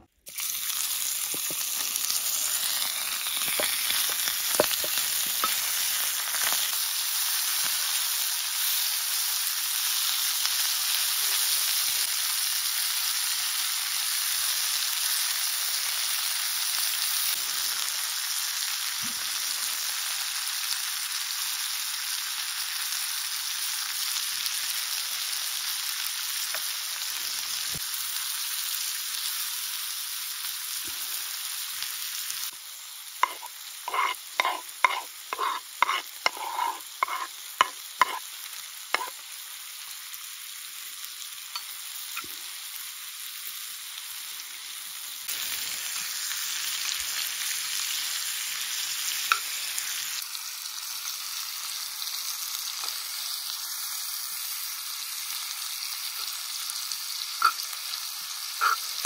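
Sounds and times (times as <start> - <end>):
meat sizzling in a pan: 0.2 - 59.0
onions scraped into pan: 0.3 - 6.8, 33.2 - 38.3, 39.0 - 39.2, 58.6 - 59.0.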